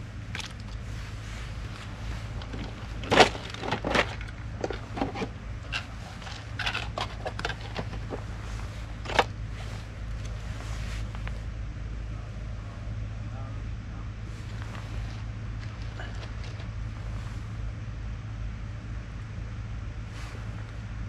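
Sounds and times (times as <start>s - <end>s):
steady low hum: 0.0s - 21.0s
plastic containers clicking and knocking: 2.4s - 8.2s.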